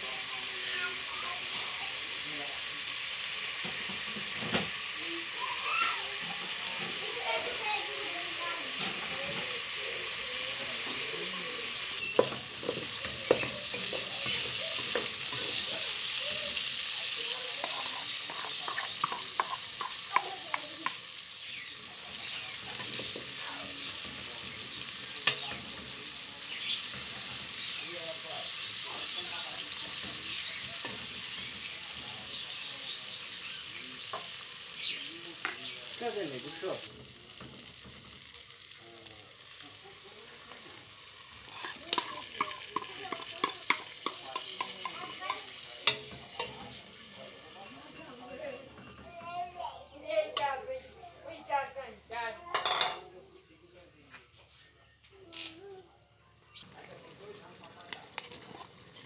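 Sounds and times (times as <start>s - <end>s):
food sizzling in a pot: 0.0s - 59.0s
metal spoon scraping a pot: 12.0s - 16.2s, 17.7s - 20.2s, 41.4s - 49.0s, 58.1s - 59.0s.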